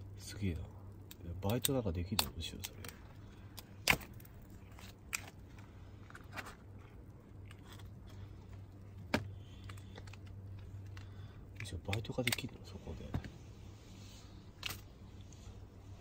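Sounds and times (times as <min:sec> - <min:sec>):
steady low hum: 0:00.0 - 0:16.0
crab legs cracking: 0:00.9 - 0:12.6, 0:14.6 - 0:14.9.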